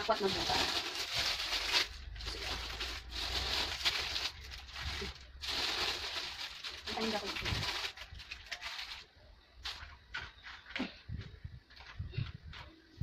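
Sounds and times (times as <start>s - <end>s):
plastic bags crinkling: 0.0s - 10.4s.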